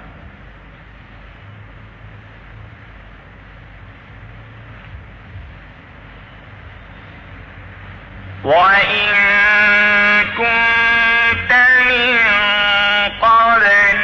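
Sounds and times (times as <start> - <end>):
background hiss: 0.0 - 14.0.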